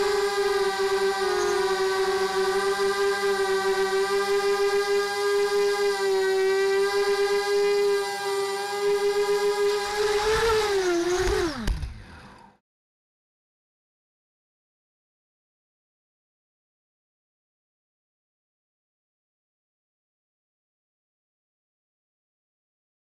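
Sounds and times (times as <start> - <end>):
drone motors whining: 0.0 - 12.6.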